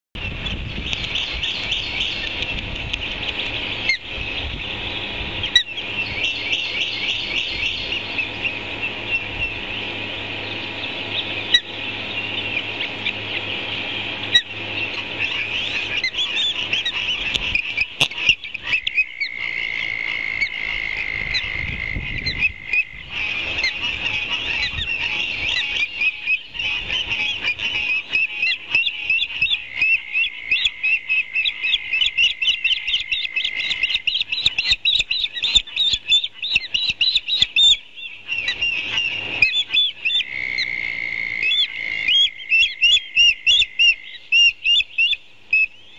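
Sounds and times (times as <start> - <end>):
birds chirping: 0.2 - 45.9
frogs calling: 0.2 - 45.9.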